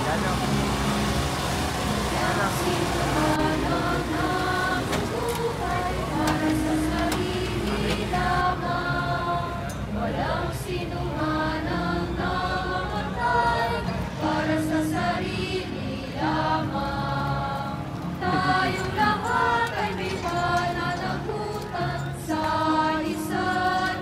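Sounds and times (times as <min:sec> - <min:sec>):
group singing a hymn: 0:00.0 - 0:24.0.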